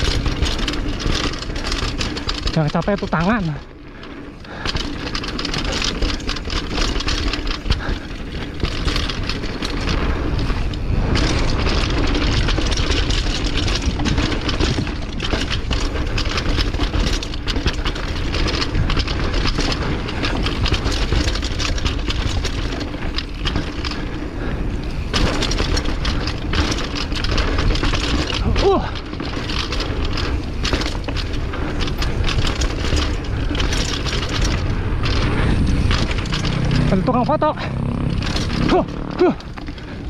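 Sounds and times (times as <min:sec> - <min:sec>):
bike clattering over bumps: 0:00.0 - 0:40.0
bike tyres on dirt: 0:00.0 - 0:40.0
heavy low rumble: 0:30.9 - 0:40.0.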